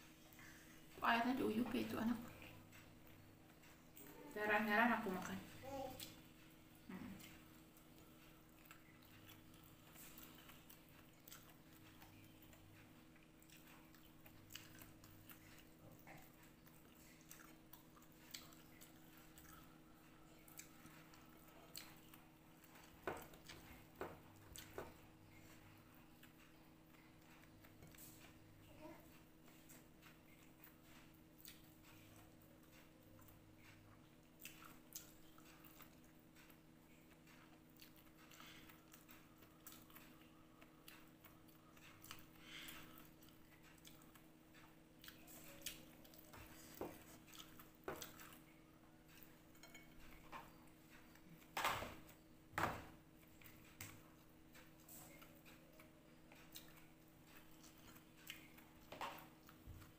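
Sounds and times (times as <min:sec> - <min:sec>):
chewing: 0:00.0 - 0:59.9
faint steady hum: 0:00.0 - 0:59.9
fingers working food on a plate: 0:26.2 - 0:52.3.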